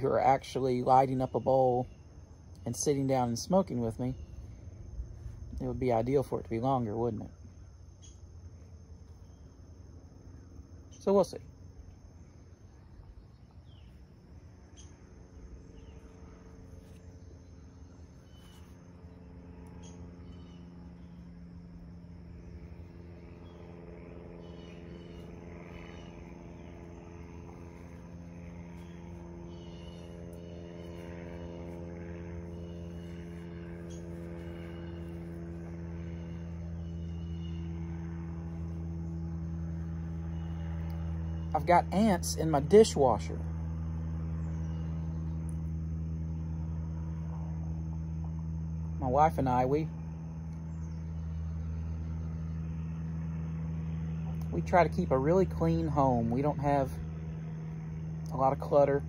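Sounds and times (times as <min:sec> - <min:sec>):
high insect trill: 0:00.0 - 0:59.0
low mechanical hum: 0:00.0 - 0:59.0
bird chirps: 0:17.2 - 0:21.3, 0:24.3 - 0:35.3.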